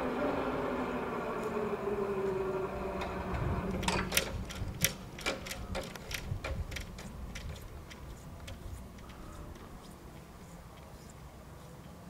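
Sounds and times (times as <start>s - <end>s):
level crossing barrier clicking: 0.0s - 9.2s.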